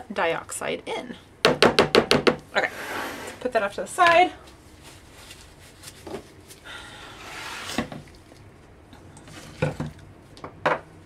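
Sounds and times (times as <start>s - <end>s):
plastic jugs scraping on table: 2.6s - 3.4s, 7.2s - 8.1s.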